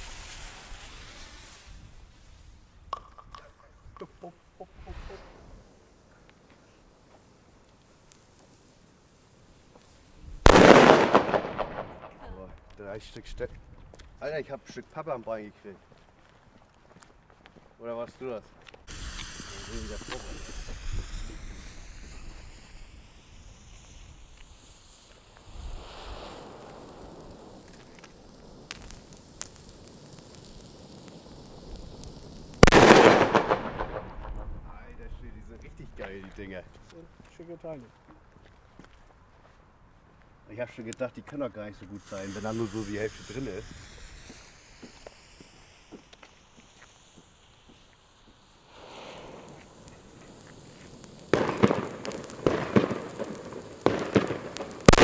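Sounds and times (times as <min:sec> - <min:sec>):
firecracker spraying sparks: 0:00.0 - 0:13.4, 0:18.2 - 0:36.7, 0:40.8 - 0:55.0
fuse crackles: 0:00.0 - 0:55.0
firecracker loud bang: 0:10.4 - 0:12.4, 0:18.9 - 0:22.9, 0:32.5 - 0:35.0, 0:42.0 - 0:55.0.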